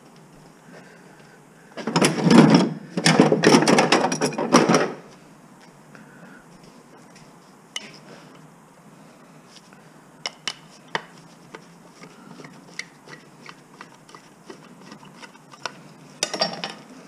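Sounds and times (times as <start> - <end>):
scrap parts clicking and knocking: 1.8 - 5.0, 10.3 - 16.8
parts clattering: 1.8 - 5.1, 15.2 - 16.9.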